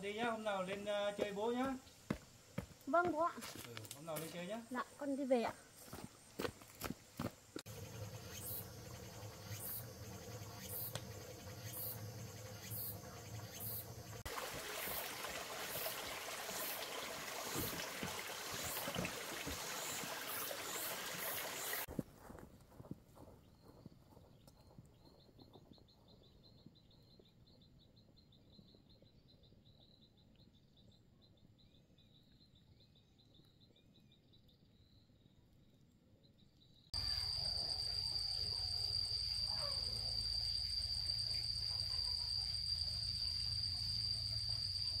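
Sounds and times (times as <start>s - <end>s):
insects trilling: 0.0s - 21.9s, 37.0s - 45.0s
high-pitched insect drone: 7.7s - 14.3s, 37.0s - 45.0s.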